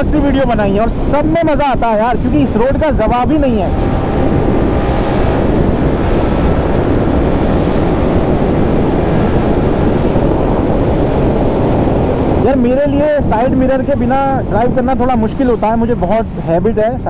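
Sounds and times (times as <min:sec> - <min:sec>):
wind rushing over microphone: 0:00.0 - 0:17.0
motorcycle engine cruising: 0:01.7 - 0:15.8.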